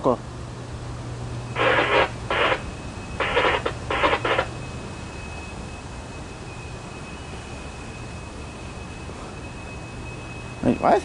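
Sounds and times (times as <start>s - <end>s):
scanner radio garbled transmission: 1.6s - 4.6s
faint steady high tone: 2.7s - 11.0s.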